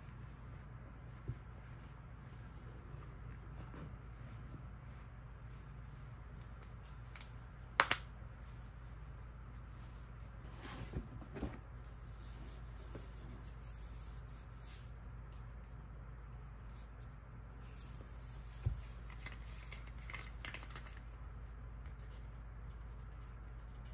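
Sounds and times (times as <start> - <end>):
low room hum: 0.0 - 23.9
soft knocks and scrapes: 2.7 - 4.7.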